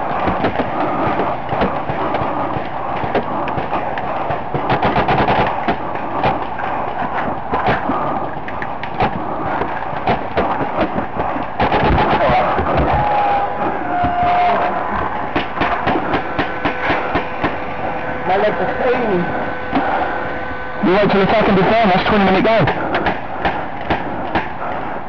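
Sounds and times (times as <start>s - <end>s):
paintball markers firing: 0.2s - 12.9s.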